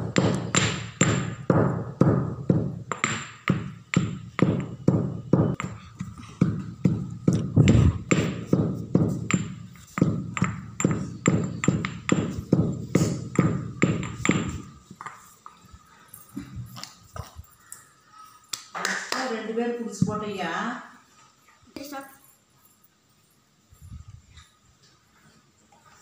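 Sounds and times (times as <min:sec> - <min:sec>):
stone pestle pounding in mortar: 0:00.0 - 0:14.8.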